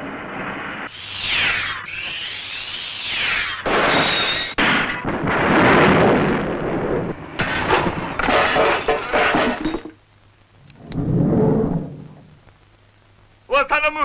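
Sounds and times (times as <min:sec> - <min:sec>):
wavering high whine: 0:00.0 - 0:04.6
loud rumbling blast: 0:05.0 - 0:08.2
falling debris crashes: 0:07.3 - 0:10.0.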